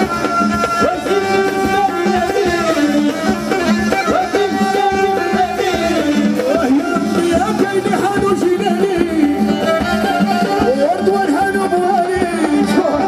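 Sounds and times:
percussion: 0:00.0 - 0:13.0
singer over loud concert sound system: 0:00.0 - 0:13.0.

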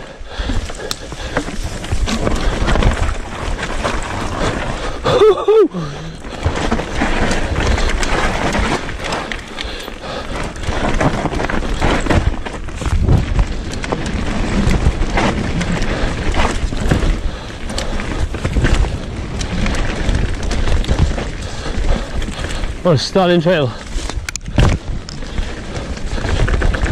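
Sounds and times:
bike rattling over bumps: 0:00.0 - 0:26.9.

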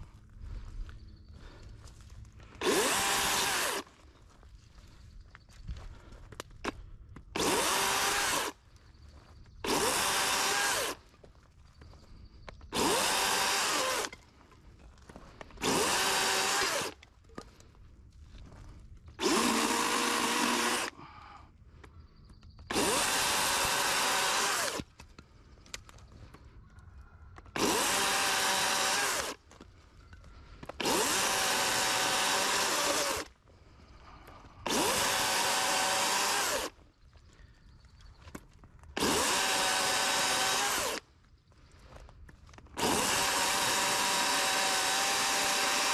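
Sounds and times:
chainsaw cutting branches: 0:02.5 - 0:03.9, 0:07.4 - 0:08.6, 0:09.6 - 0:11.1, 0:12.7 - 0:14.2, 0:15.4 - 0:17.0, 0:19.2 - 0:21.0, 0:22.7 - 0:25.0, 0:27.5 - 0:29.5, 0:30.6 - 0:33.4, 0:34.3 - 0:36.8, 0:38.9 - 0:41.1, 0:42.7 - 0:45.9.

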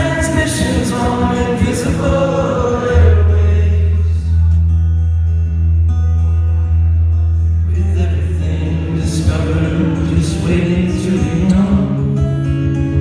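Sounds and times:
man singing: 0:00.0 - 0:04.5, 0:07.6 - 0:13.0
acoustic guitar: 0:00.0 - 0:13.0.

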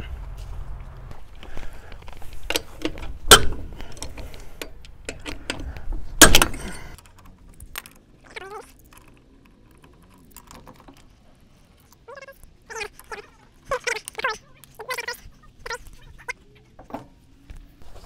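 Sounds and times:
loud metal clanks: 0:06.2 - 0:07.0.

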